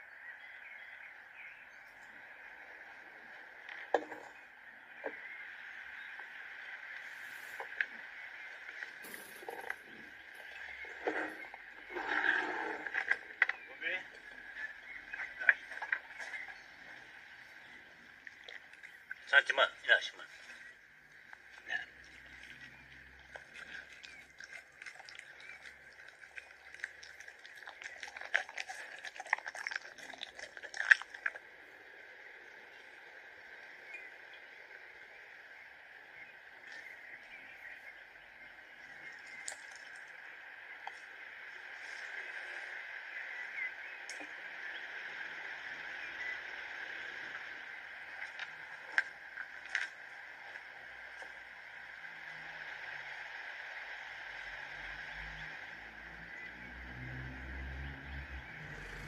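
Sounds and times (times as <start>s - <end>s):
puppy lapping milk: 23.6s - 31.4s.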